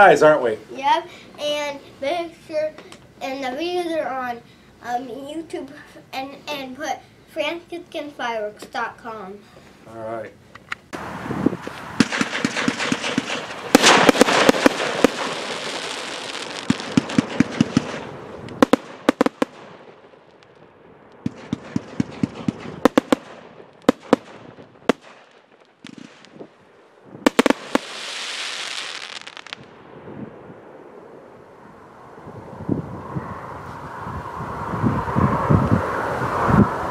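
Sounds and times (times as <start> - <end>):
firework hiss and crackle: 10.9 - 20.6, 21.2 - 26.6, 27.2 - 29.8
firework launch and burst cracks: 11.6 - 20.6, 21.2 - 26.5, 27.2 - 30.1.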